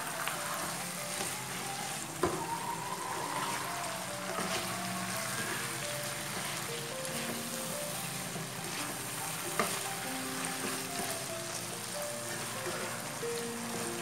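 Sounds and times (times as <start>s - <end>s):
sauce sizzling in a wok: 0.0s - 14.0s
spatula scraping a pan: 3.4s - 11.6s, 12.2s - 14.0s.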